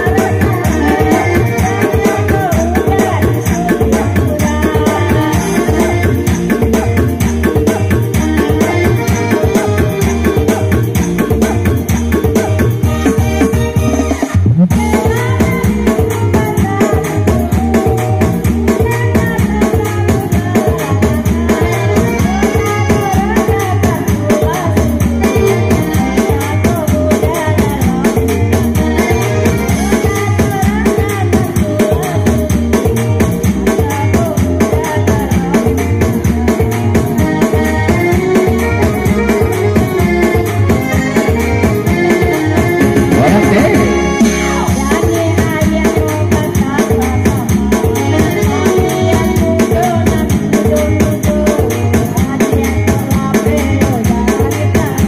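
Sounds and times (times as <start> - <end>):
elderly woman singing: 0.0 - 6.0
shaken tambourine-like percussion: 0.0 - 13.7
amplified band music: 0.0 - 55.0
electronic keyboard: 0.0 - 55.0
rattling percussion beat: 0.0 - 55.0
woman singing into microphone: 0.0 - 55.0.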